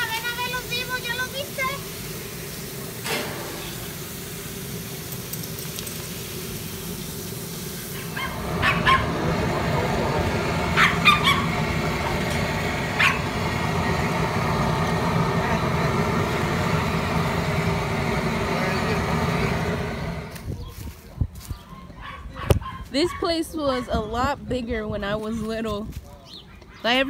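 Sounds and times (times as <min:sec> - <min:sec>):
steady rushing noise: 0:06.4 - 0:20.5
dog barking: 0:08.0 - 0:09.2, 0:10.7 - 0:11.6, 0:13.0 - 0:13.3, 0:21.7 - 0:24.0.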